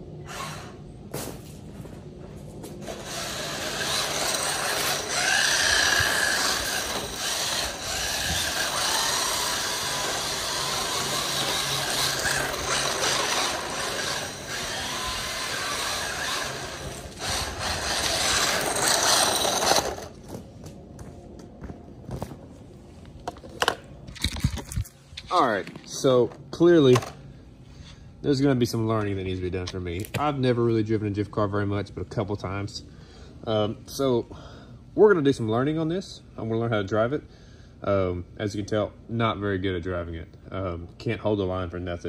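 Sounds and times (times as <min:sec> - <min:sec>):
tyres sliding over ground: 0:01.1 - 0:20.7
electric motor whining: 0:02.8 - 0:20.2.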